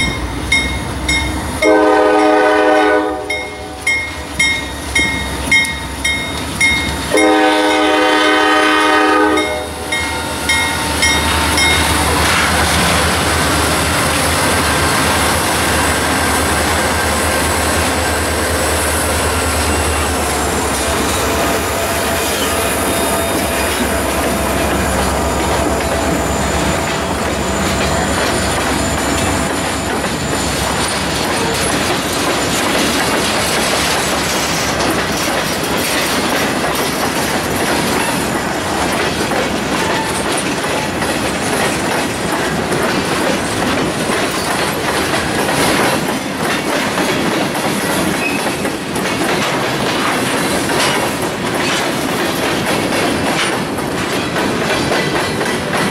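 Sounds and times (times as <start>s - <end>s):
steel train wheels rumbling: 0.0s - 55.9s
wheels clicking over rail joints: 22.2s - 55.9s.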